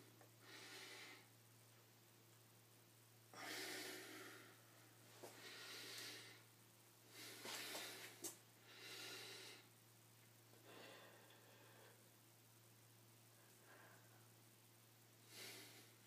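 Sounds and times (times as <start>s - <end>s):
faint low hum: 0.0s - 16.0s
man breathing heavily: 0.4s - 1.3s, 3.3s - 6.5s, 7.1s - 9.7s, 10.6s - 12.1s.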